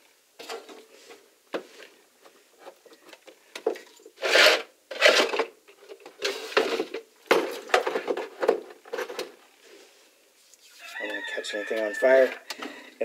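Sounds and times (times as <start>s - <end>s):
rubbing and scraping: 4.1s - 5.5s.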